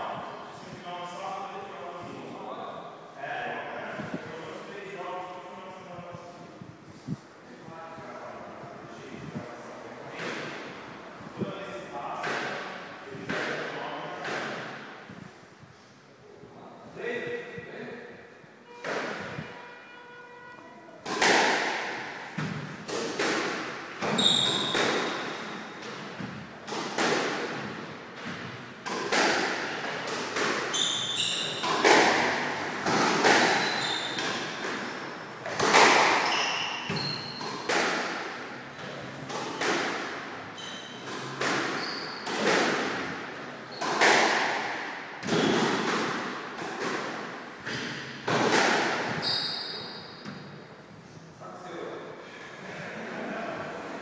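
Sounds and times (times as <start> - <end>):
squash ball hits echoing: 21.0 - 38.4, 39.2 - 40.3, 41.0 - 49.2.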